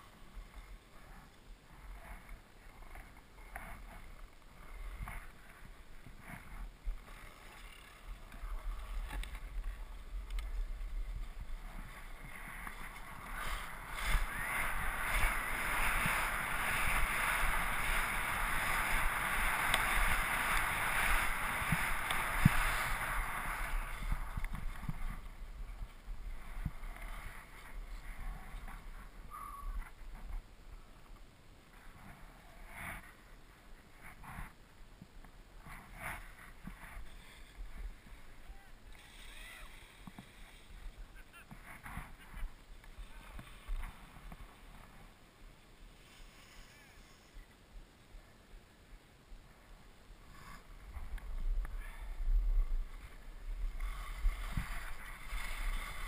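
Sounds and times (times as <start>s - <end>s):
wind rumbling on microphone: 0.0s - 45.4s, 49.4s - 56.0s
skis hissing over snow: 3.7s - 29.2s, 35.6s - 45.1s, 45.8s - 47.4s, 51.7s - 56.0s.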